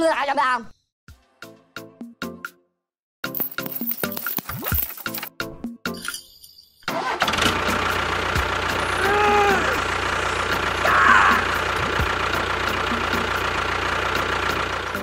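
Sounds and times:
tractor engine running: 7.0 - 15.0.

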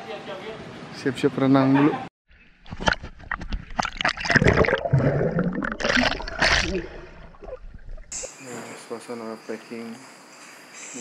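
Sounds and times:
water splashing in pool: 2.7 - 8.3.

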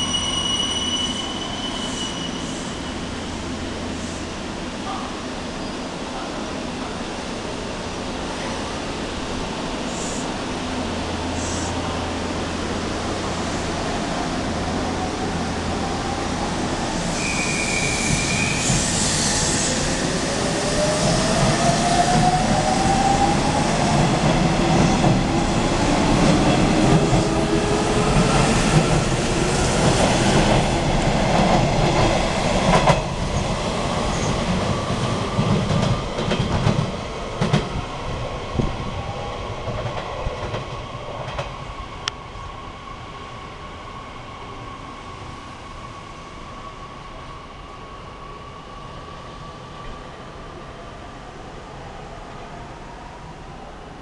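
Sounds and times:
train wheels rumbling: 11.0 - 42.6
wheels clacking on rails: 26.1 - 37.8.

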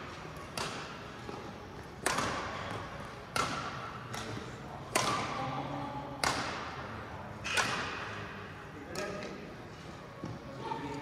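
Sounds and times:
badminton racket hits: 0.3 - 1.4, 2.0 - 8.3.

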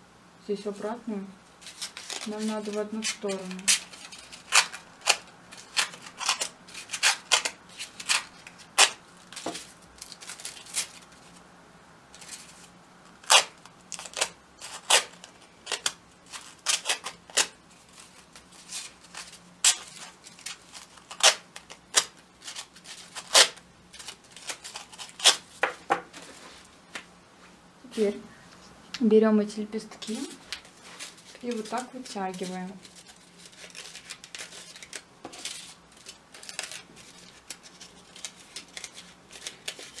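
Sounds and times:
scissors snipping paper: 31.3 - 40.0.

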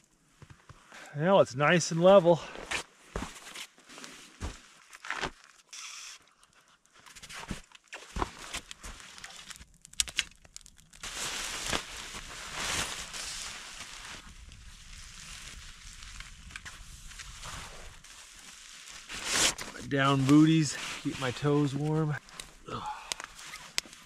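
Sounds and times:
sleeping gear crinkling and knocking: 6.3 - 14.6, 16.0 - 24.0.

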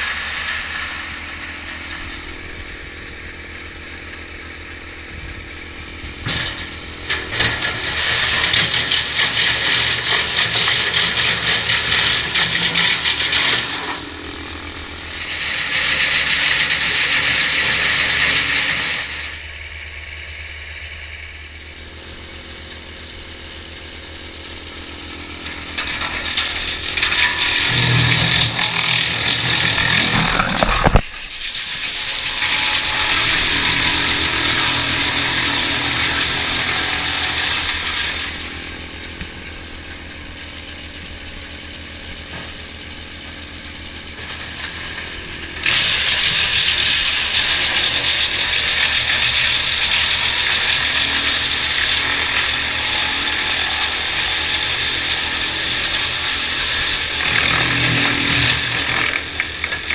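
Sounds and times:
wood chipper grinding branches: 0.0 - 59.9.

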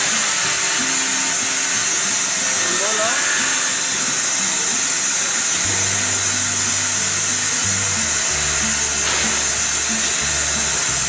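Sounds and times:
workshop machinery rushing hiss: 0.0 - 11.0
music with low bass notes: 5.4 - 11.0.

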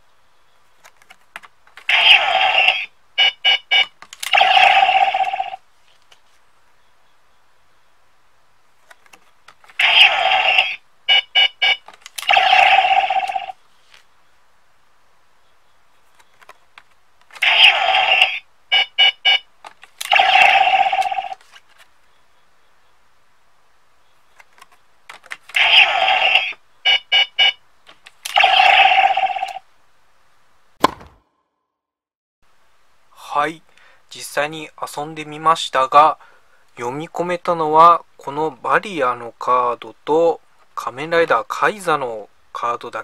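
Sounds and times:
loud electronic sound effect: 1.9 - 3.6, 9.8 - 10.8, 17.4 - 18.4
quick electronic beeps: 3.2 - 5.3, 10.3 - 13.5, 18.1 - 19.5, 26.4 - 27.6
plastic clicks: 24.3 - 25.6.

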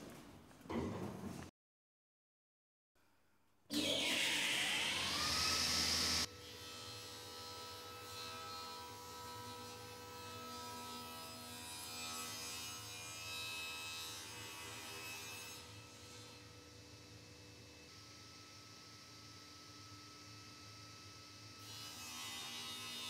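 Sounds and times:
circular saw whine: 3.8 - 6.4.

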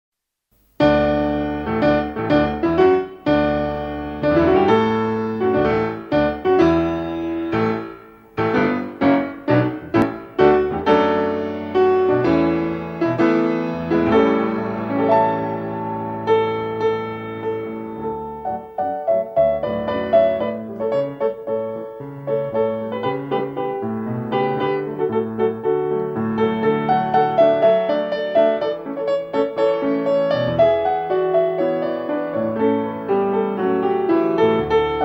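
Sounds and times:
solo piano music: 0.6 - 35.0.

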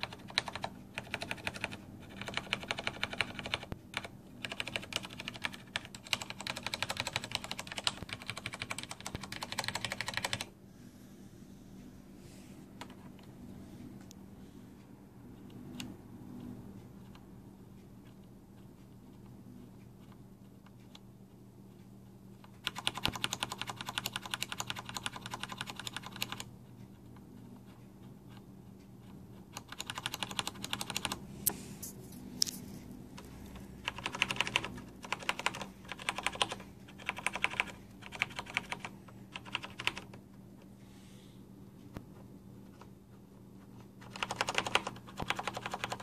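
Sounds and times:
mechanical keyboard typing: 0.0 - 10.6, 22.4 - 26.5, 29.4 - 31.4, 33.2 - 40.3, 43.8 - 46.0.

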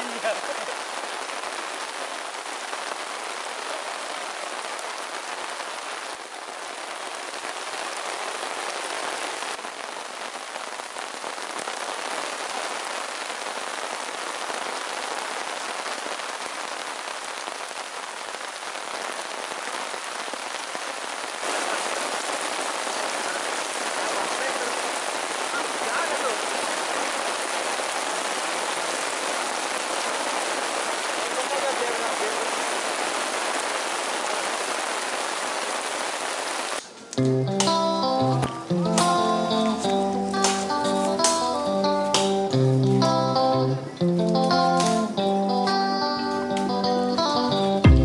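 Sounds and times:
steady rain falling: 0.0 - 48.0.

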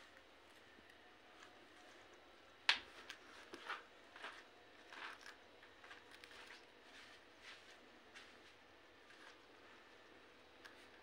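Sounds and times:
soft crunching clicks: 9.1 - 11.0.

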